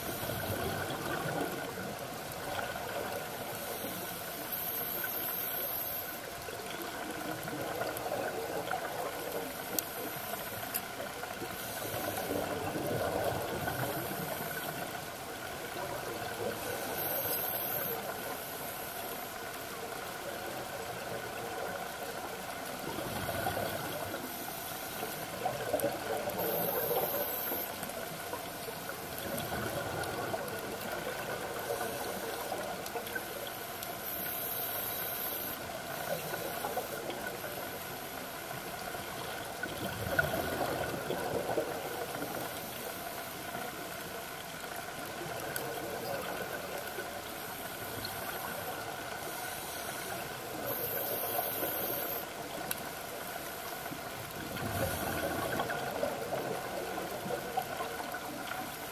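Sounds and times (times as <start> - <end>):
faint steady hum: 0.0 - 58.9
regulator bubbles exhaled: 54.4 - 57.9.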